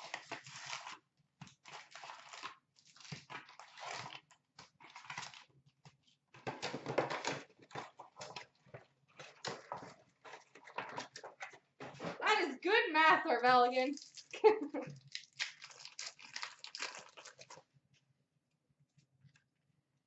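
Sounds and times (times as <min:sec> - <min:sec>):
foil packs rustling and crinkling: 0:00.0 - 0:12.4, 0:14.9 - 0:17.6.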